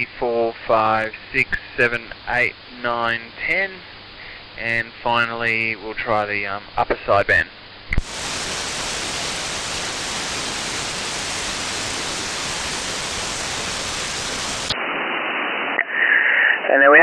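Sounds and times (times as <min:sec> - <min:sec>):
radio static hiss: 0:00.0 - 0:17.0.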